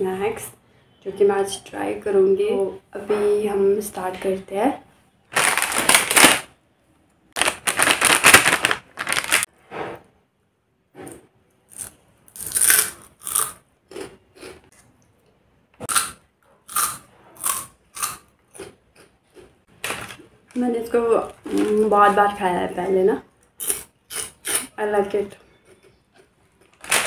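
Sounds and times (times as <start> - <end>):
plastic snack packet rustling: 5.3 - 6.5, 7.4 - 9.5, 19.7 - 22.4, 26.6 - 27.0
crunchy snack chewing: 11.7 - 14.9, 15.9 - 19.5, 23.5 - 24.7.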